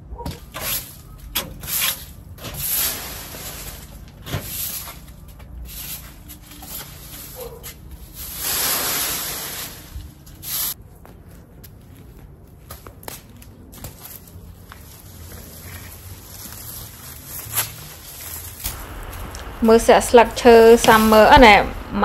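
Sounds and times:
broom sweeping leaves on brick: 0.5 - 10.8, 13.8 - 21.7.

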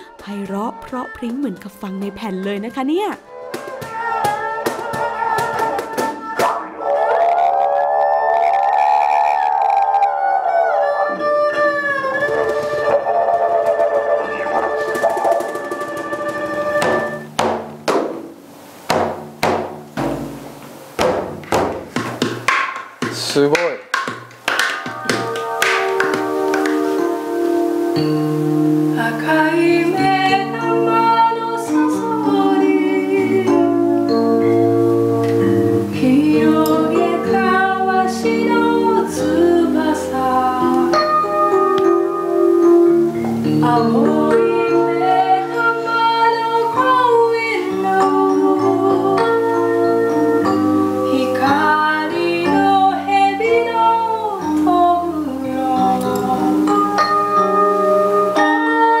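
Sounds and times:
woman singing folk melody: 0.0 - 3.3, 28.8 - 34.7, 35.8 - 41.3, 43.4 - 57.2, 58.3 - 59.0
keyboard chords: 4.4 - 21.8, 24.7 - 59.0.

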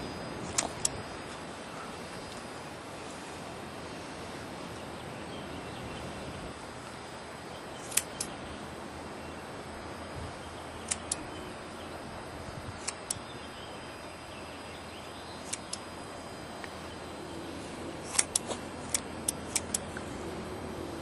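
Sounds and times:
scissors snipping fur: 18.0 - 19.8.

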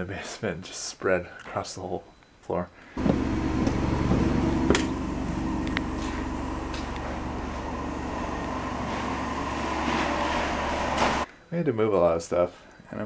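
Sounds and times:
pump motor drone: 3.0 - 11.2.

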